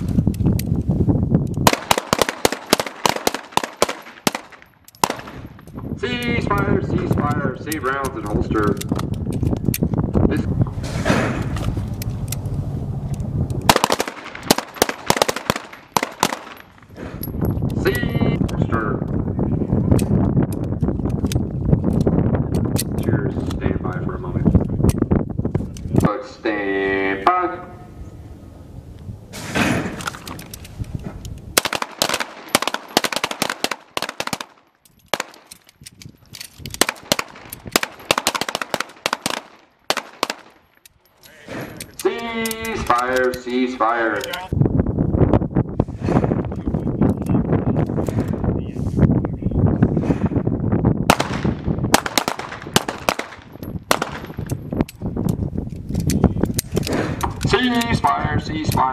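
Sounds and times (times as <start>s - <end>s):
pistol shots: 1.6s - 5.6s, 13.7s - 17.0s, 31.6s - 35.6s, 36.7s - 40.6s, 51.1s - 54.5s.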